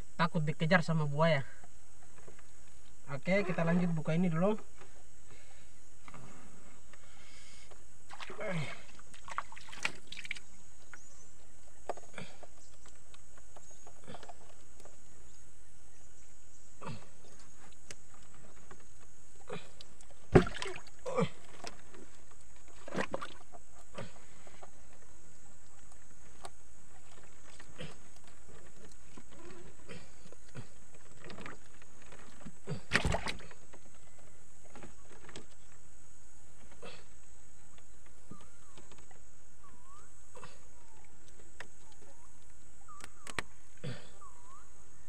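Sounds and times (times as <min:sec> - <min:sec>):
knocks in wooden canoe: 0:20.3 - 0:20.9.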